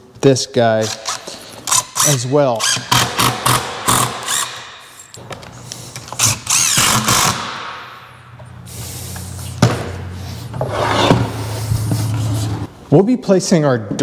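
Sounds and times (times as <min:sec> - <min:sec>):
cordless drill driving screw: 0:00.8 - 0:04.7, 0:06.0 - 0:07.7.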